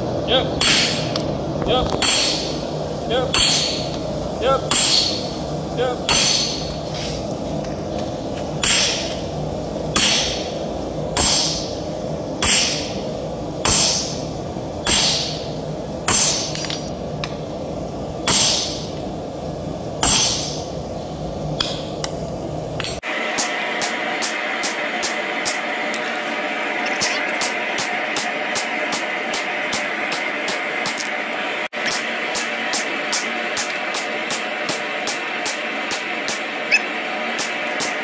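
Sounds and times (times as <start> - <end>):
steady background noise: 0.0 - 38.0
hammer striking metal on anvil: 0.6 - 1.2, 2.0 - 2.6, 3.3 - 4.0, 4.7 - 5.3, 6.1 - 6.8, 8.6 - 9.2, 9.9 - 10.5, 11.2 - 11.7, 12.4 - 13.0, 13.6 - 14.2, 14.8 - 15.5, 16.1 - 16.9, 18.2 - 18.9, 20.0 - 20.7, 21.6 - 22.1.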